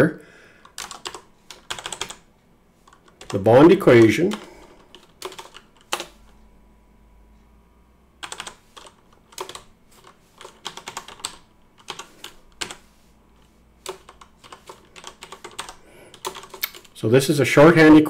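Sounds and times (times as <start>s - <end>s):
computer keyboard typing: 0.6s - 2.2s, 2.8s - 6.4s, 8.2s - 12.9s, 13.8s - 17.0s.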